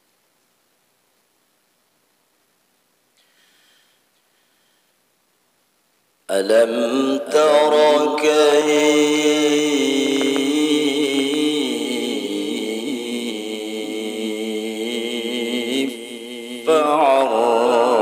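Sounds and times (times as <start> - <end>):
man reciting melodically: 6.3 - 18.0.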